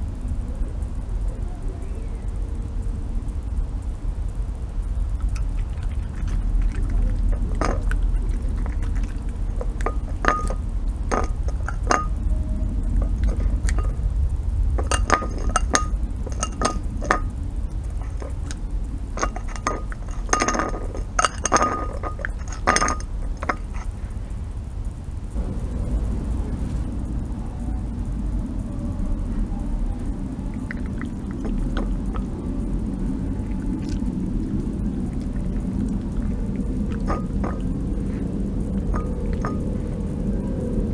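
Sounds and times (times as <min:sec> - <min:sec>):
low steady rumble: 0:00.0 - 0:40.9
teeth clinking on ceramic plate: 0:05.2 - 0:12.3, 0:14.8 - 0:18.6, 0:19.2 - 0:23.9, 0:36.9 - 0:38.2, 0:38.8 - 0:39.9.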